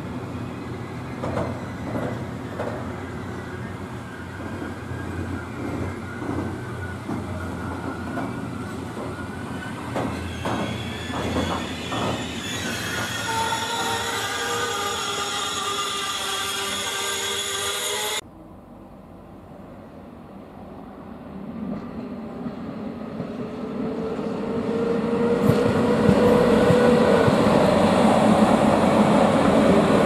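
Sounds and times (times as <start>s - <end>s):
train rumbling past: 0.0s - 30.0s
high wheel squeal: 1.4s - 18.2s.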